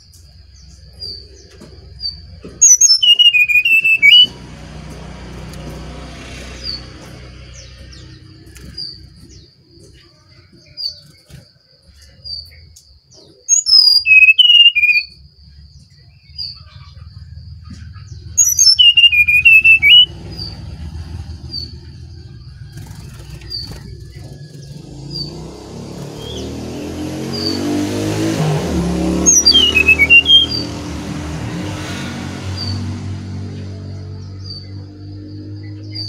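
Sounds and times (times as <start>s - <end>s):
short high bird chirp: 2.1s - 4.3s, 13.3s - 15.2s, 18.2s - 20.6s, 29.3s - 30.7s
bird singing whistled phrases: 2.6s - 4.3s, 13.5s - 15.2s, 18.1s - 20.6s, 29.2s - 30.7s.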